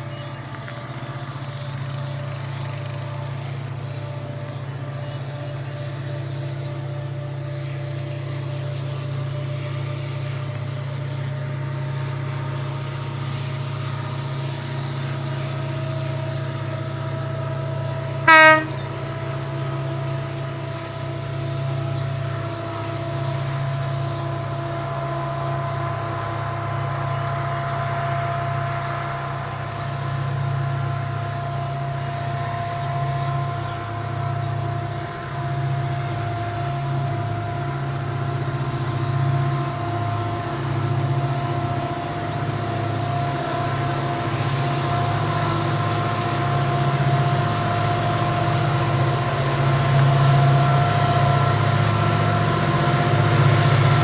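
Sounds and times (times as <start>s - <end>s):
locomotive engine drone with whine: 0.0s - 54.0s
train horn blast: 17.4s - 19.9s.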